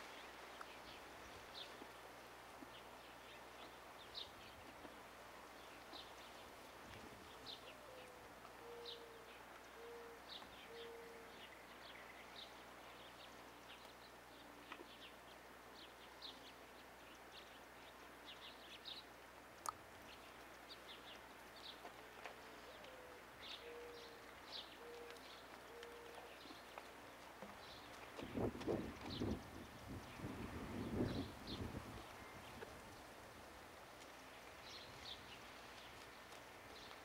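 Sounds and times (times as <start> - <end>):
small birds chirping: 7.2 - 33.1, 34.0 - 37.0
dove cooing: 7.6 - 11.3, 22.4 - 26.3.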